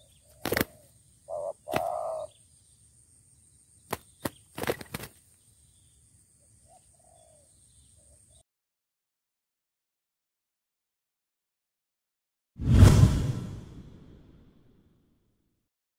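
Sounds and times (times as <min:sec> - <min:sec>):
dove calls: 0:00.0 - 0:02.4, 0:03.8 - 0:05.4, 0:06.6 - 0:08.4
wing slaps: 0:00.3 - 0:00.9, 0:01.7 - 0:02.2, 0:03.8 - 0:05.2.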